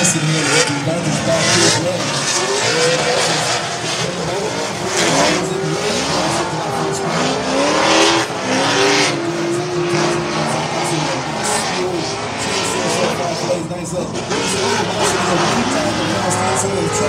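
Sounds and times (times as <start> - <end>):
car engines revving hard: 0.0 - 17.0
tyres squealing: 0.0 - 17.0.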